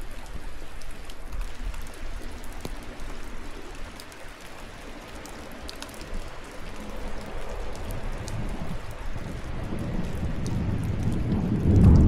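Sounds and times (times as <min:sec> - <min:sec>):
raindrops ticking close by: 0:00.0 - 0:12.0
steady rainfall: 0:00.0 - 0:12.0
thunder rumbling: 0:07.2 - 0:12.0.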